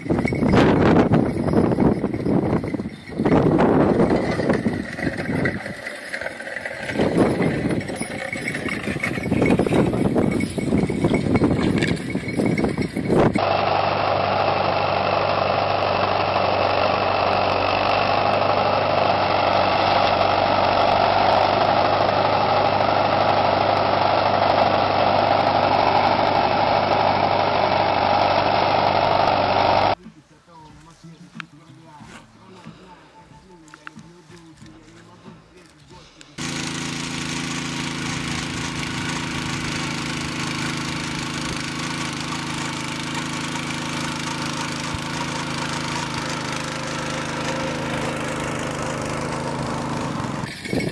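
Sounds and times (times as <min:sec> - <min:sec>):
clatter and rustling: 0:00.0 - 0:13.4
tractor engine running steadily: 0:00.0 - 0:50.9.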